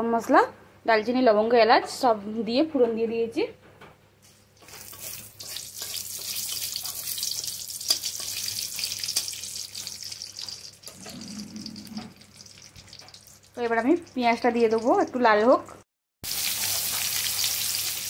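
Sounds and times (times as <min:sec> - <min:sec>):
oil crackling: 0:04.6 - 0:15.0
spices sizzling in hot oil: 0:04.6 - 0:15.3, 0:16.2 - 0:18.0.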